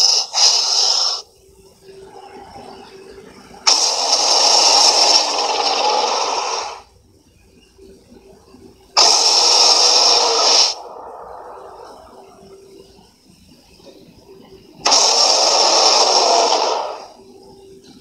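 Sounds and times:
giant ape roaring: 3.8 - 6.8.

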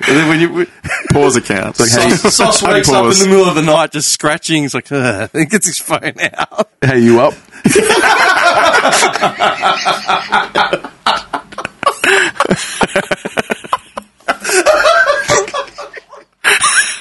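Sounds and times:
men laughing: 6.1 - 6.8, 7.5 - 17.0.

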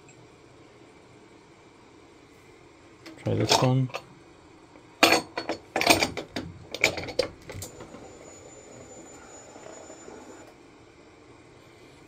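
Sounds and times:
faint high-pitched whine: 6.7 - 12.0.

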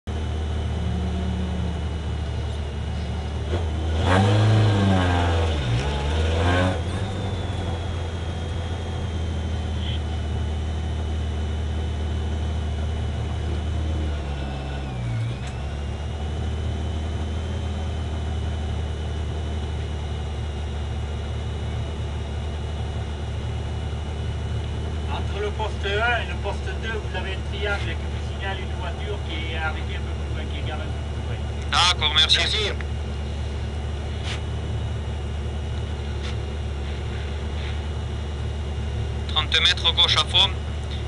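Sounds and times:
car engine idling and revving: 0.0 - 41.0.

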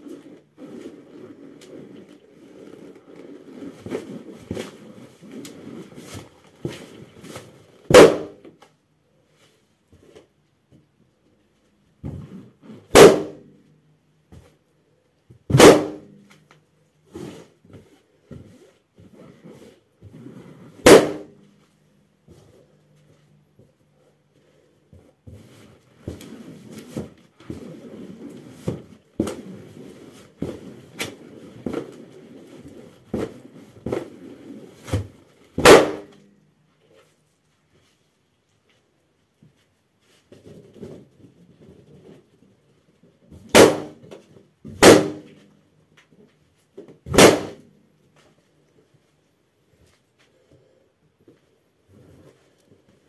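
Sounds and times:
balloons popping: 7.9 - 8.4, 12.9 - 13.5, 15.5 - 16.3, 20.8 - 21.4, 34.8 - 36.2, 43.4 - 44.1, 44.7 - 45.4, 47.1 - 47.6.

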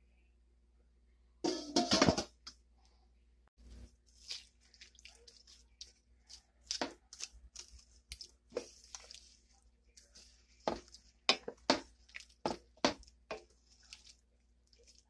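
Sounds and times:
wooden spoon stirring vegetables: 3.7 - 15.0.

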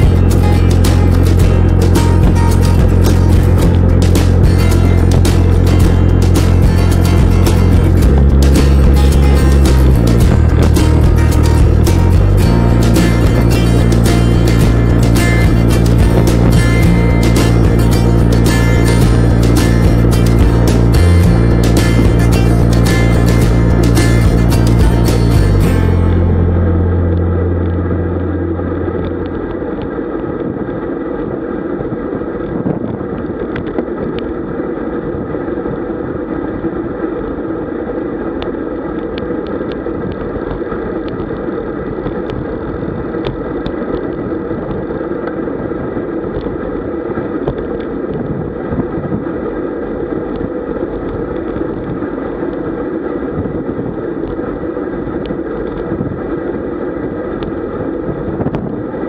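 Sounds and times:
wind and bicycle road noise: 0.0 - 24.1, 28.2 - 59.0
music track: 0.0 - 30.4.

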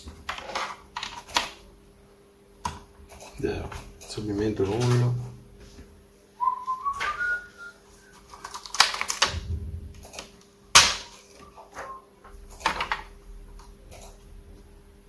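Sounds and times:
faint steady hum: 0.0 - 15.0
rising whistle-like tone: 6.4 - 8.2.

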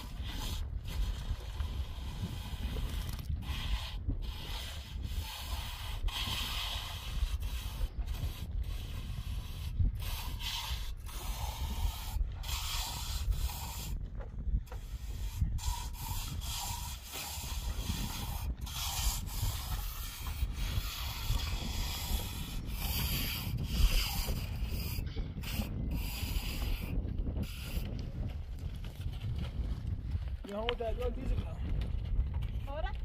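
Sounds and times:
trowel scraping mortar: 0.0 - 14.0, 14.7 - 28.2.

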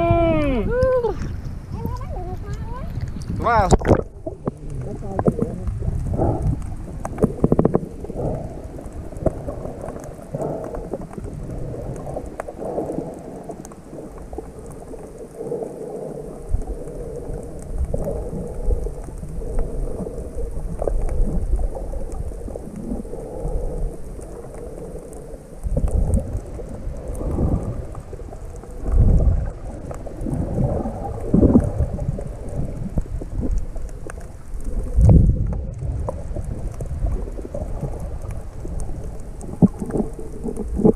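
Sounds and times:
muffled underwater rumble: 0.0 - 40.9.

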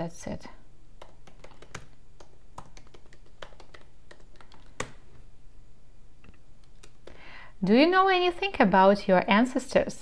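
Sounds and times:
typing on computer keyboard: 1.0 - 5.0.

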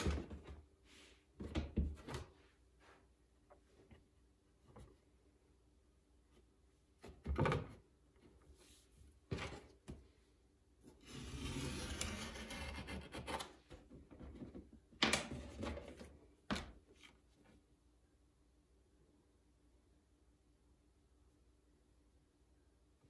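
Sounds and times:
rubbing and sliding: 10.9 - 13.7.

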